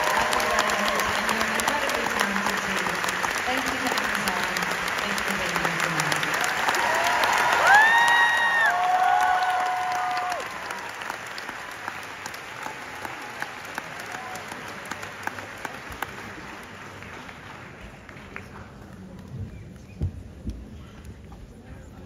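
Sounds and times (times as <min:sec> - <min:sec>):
audience applauding: 0:00.0 - 0:19.2.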